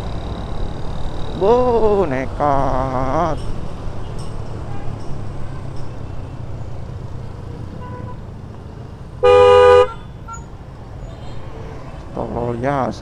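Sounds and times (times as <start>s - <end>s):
motorcycle engine and road rumble: 0.0s - 13.0s
vehicle horn honk: 9.2s - 10.5s.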